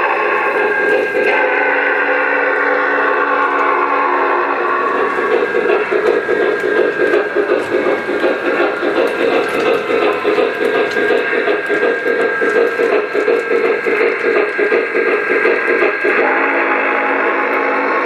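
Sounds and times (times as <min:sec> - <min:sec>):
model steam locomotive chuffing: 0:00.0 - 0:18.0
model train wheels rumbling on track: 0:00.0 - 0:18.0
train whistle chord: 0:01.3 - 0:08.0, 0:16.1 - 0:18.0.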